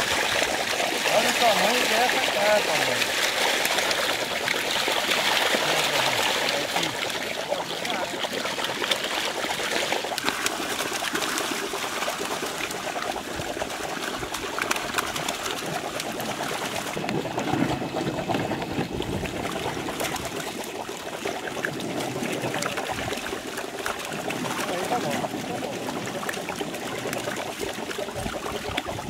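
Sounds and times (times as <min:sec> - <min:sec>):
fish thrashing in net: 0:00.0 - 0:12.7, 0:13.6 - 0:20.4
water splashing and trickling: 0:00.0 - 0:29.0.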